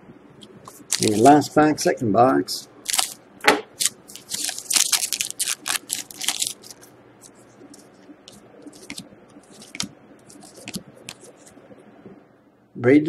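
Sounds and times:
cards clicking and rustling: 0.7s - 1.3s, 2.9s - 3.2s, 3.8s - 11.4s
wrapper crackling: 0.7s - 1.3s, 2.9s - 3.2s, 3.8s - 6.9s, 8.6s - 11.3s.

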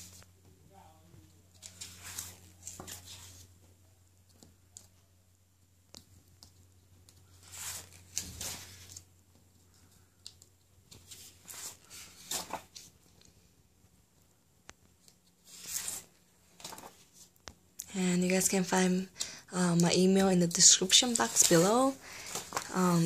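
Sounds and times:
low steady hum: 0.0s - 23.0s
paper posters rustling: 1.5s - 3.6s, 6.5s - 10.1s, 10.8s - 13.3s, 15.0s - 17.4s, 19.6s - 23.0s.

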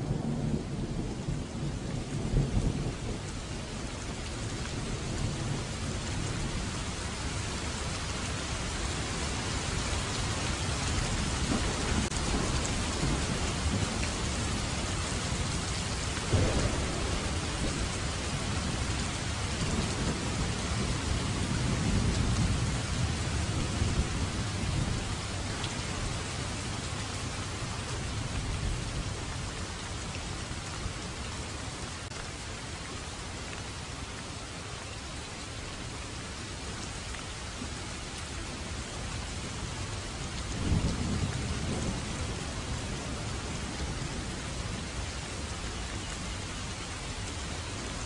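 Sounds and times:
heavy rain: 0.0s - 48.0s
thunder rumbling: 11.0s - 29.4s, 40.5s - 44.8s.

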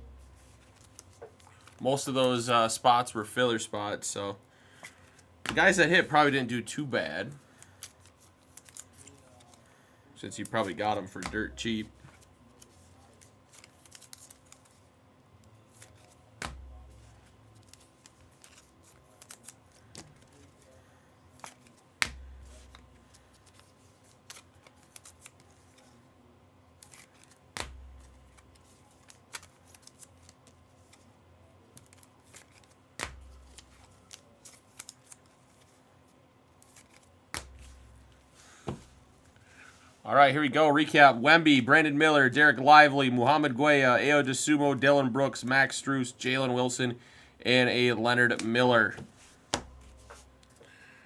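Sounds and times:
cards rustling and sliding: 0.2s - 2.5s, 4.7s - 6.4s, 7.3s - 14.9s, 15.5s - 26.0s, 26.8s - 31.1s, 31.7s - 35.8s, 36.6s - 39.0s, 48.4s - 50.6s.

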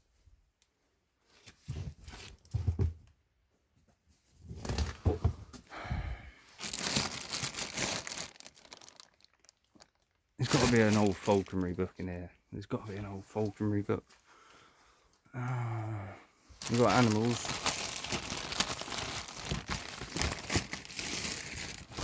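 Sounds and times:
paper rustling and crinkling: 6.6s - 11.8s, 16.6s - 22.0s.

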